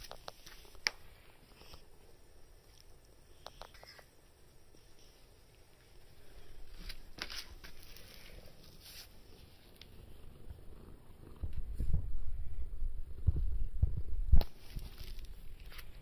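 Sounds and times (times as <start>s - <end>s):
faint scuffs and rustles: 6.6s - 9.9s
cat purring: 7.9s - 14.2s.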